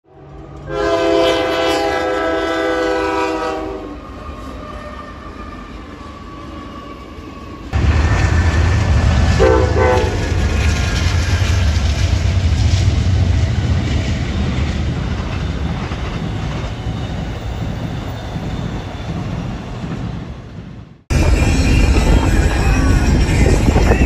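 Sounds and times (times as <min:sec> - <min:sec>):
train noise: 0:00.1 - 0:24.0
locomotive air horn: 0:00.6 - 0:04.0, 0:09.4 - 0:10.2
loud low rumble: 0:07.8 - 0:15.1.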